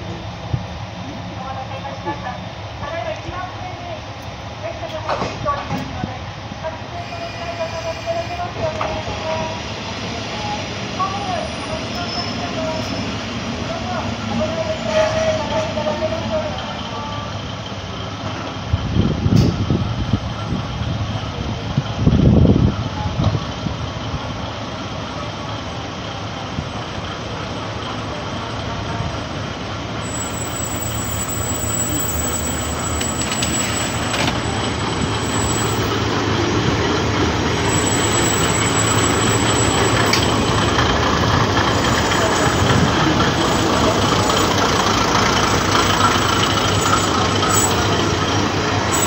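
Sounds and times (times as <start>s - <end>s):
diesel railcar engine drone: 0.0s - 49.0s
thin high-pitched squeal: 30.0s - 36.0s.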